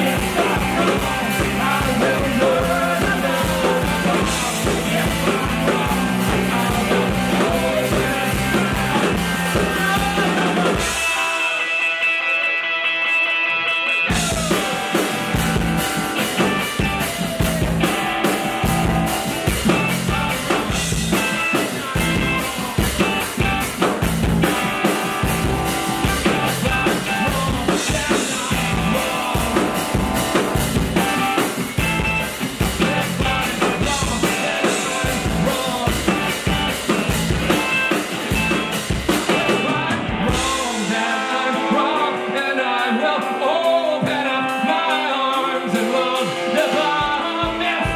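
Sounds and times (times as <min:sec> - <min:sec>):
bass guitar: 0:00.0 - 0:47.9
drum kit: 0:00.0 - 0:47.9
electric guitar: 0:00.0 - 0:47.9
man singing: 0:00.0 - 0:47.9.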